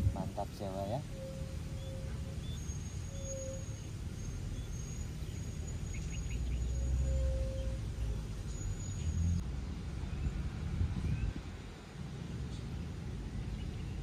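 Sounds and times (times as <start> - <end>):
birds chirping: 0.0 - 9.4
birds whistling: 0.0 - 9.4.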